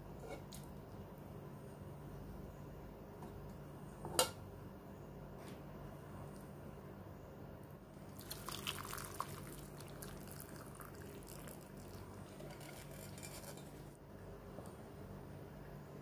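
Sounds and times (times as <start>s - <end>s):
broth pouring and splashing: 8.1s - 13.2s.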